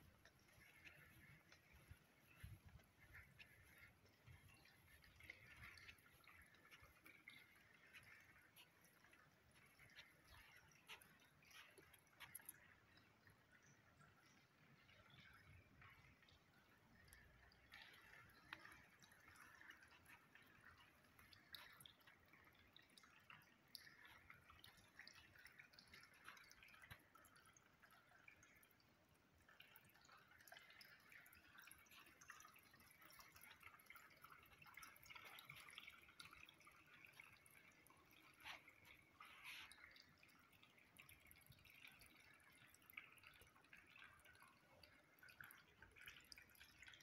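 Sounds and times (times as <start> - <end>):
water trickling and dripping: 0.0 - 47.0.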